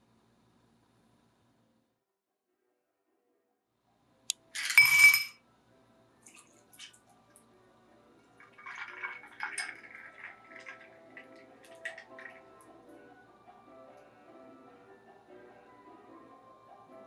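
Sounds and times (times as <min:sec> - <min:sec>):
ice cubes clattering into glass: 0:04.6 - 0:05.3, 0:08.5 - 0:10.9
ice clinking against glass: 0:04.6 - 0:05.4, 0:08.5 - 0:10.9
milk pouring and splashing: 0:06.3 - 0:07.1, 0:08.3 - 0:12.9.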